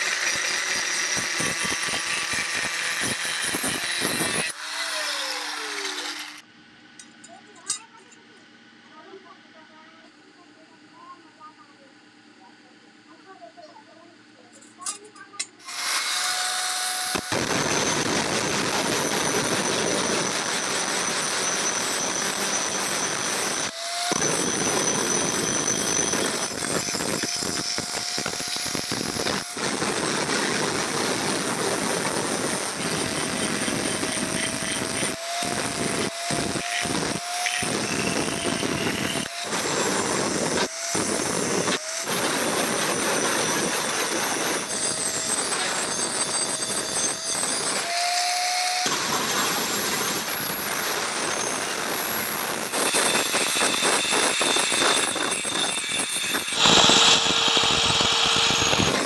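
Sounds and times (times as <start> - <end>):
angle grinder grinding steel: 0.0 - 6.4, 14.8 - 59.0.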